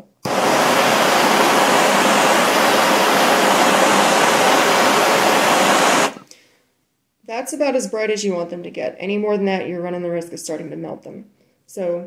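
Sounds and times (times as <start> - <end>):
gas torch hissing: 0.2 - 6.2.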